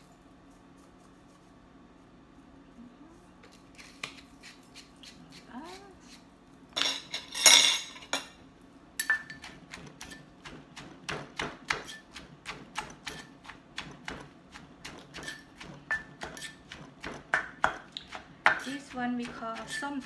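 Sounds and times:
pestle knocking in a mortar: 9.1s - 20.0s.

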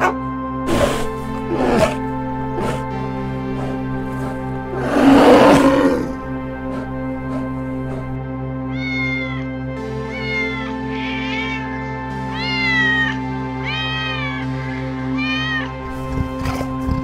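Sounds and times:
background music: 0.0s - 17.0s
cat meowing: 8.7s - 9.4s, 10.1s - 11.6s.

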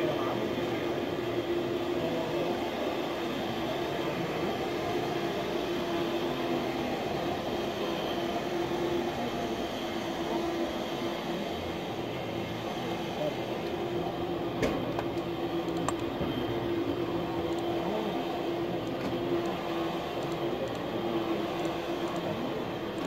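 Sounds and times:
constant humming tone: 0.0s - 23.0s.

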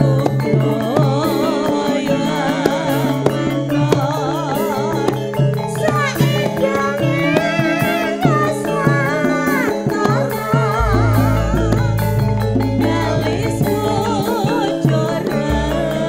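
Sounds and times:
high wavering melody: 5.8s - 16.0s
held ensemble notes: 9.2s - 16.0s
low bass line: 10.8s - 14.8s, 15.4s - 16.0s.

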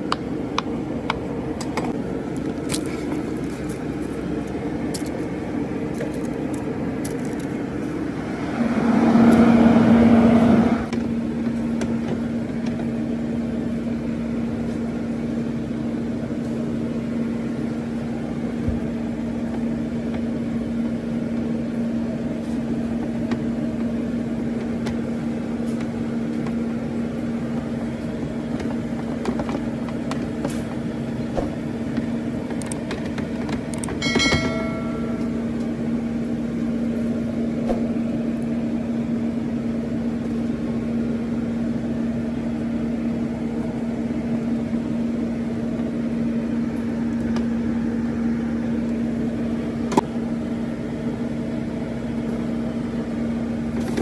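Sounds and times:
steady machine hum: 0.0s - 54.0s
steady low tone: 34.0s - 54.0s.

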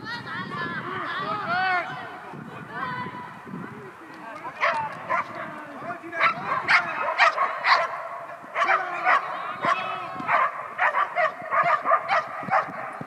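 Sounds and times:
dog barking: 4.6s - 5.4s, 6.2s - 13.0s.

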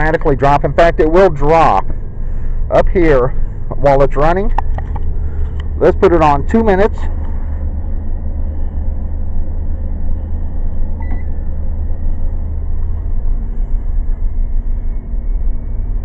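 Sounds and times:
faint microwave hum: 0.0s - 16.0s
van engine idling: 0.0s - 16.0s
microwave keypad beep: 11.0s - 11.3s.

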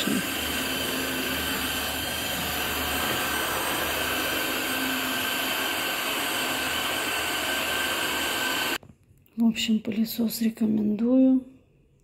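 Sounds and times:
vacuum cleaner whining: 0.0s - 8.8s.

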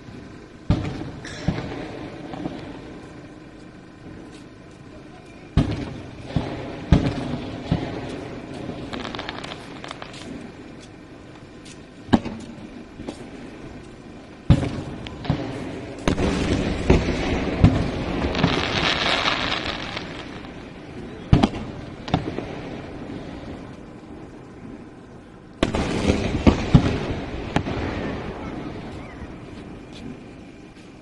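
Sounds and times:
firework shells booming: 0.0s - 25.0s, 25.6s - 30.7s
crackling fizz of sparks: 0.0s - 31.0s.

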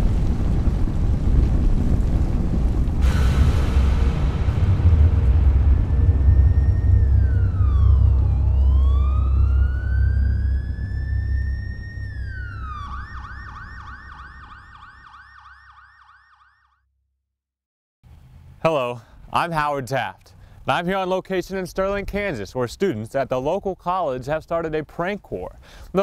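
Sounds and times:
deep rumble: 0.0s - 14.7s
emergency vehicle siren: 4.6s - 16.8s.

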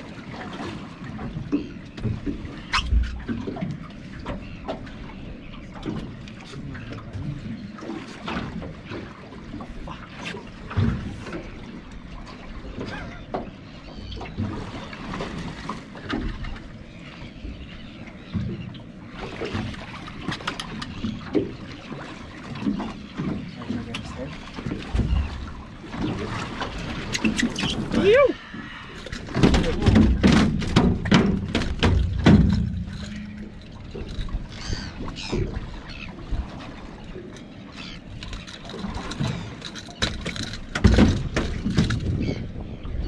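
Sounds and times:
water sloshing against boat: 0.0s - 43.0s
knocks and clatters: 29.2s - 34.4s, 38.2s - 42.3s.

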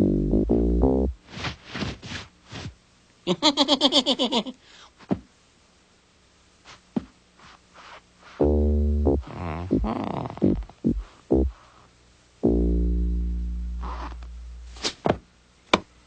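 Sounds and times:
loud low note: 12.4s - 14.8s.

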